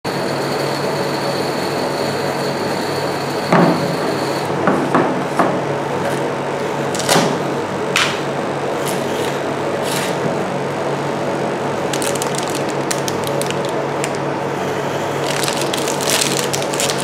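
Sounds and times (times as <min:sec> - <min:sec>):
machine cold plate humming: 0:00.1 - 0:17.0
foil seal crinkling: 0:11.9 - 0:14.2, 0:15.2 - 0:17.0.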